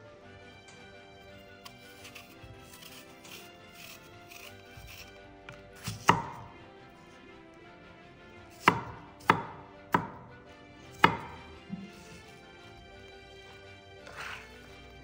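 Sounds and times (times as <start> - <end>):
knife chopping on wooden board: 1.6 - 6.6, 8.5 - 15.0.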